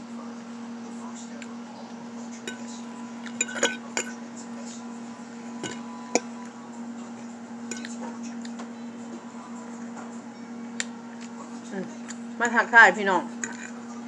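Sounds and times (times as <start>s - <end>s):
fork clinking on plate: 2.5s - 4.2s, 5.6s - 6.4s, 7.7s - 8.0s, 13.4s - 13.8s.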